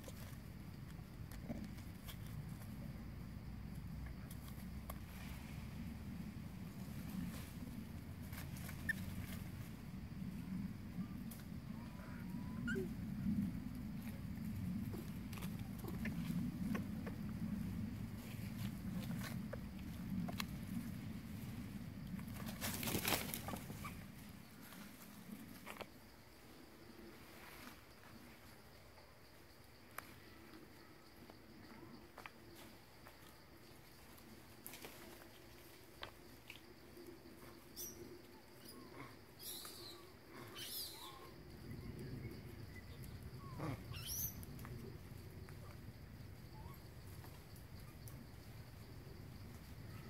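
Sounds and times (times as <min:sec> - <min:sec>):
faint insect drone: 0:00.0 - 0:50.0.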